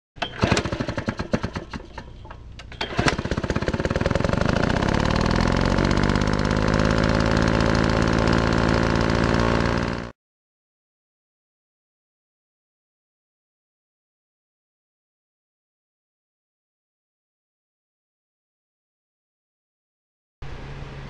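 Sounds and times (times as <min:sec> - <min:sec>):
fast mechanical engine rattle: 0:00.2 - 0:10.1.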